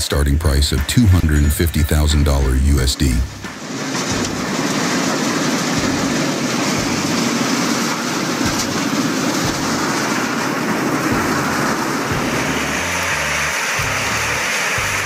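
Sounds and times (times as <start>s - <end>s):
machine running: 0.0s - 15.0s
soil pouring off belts: 3.5s - 15.0s.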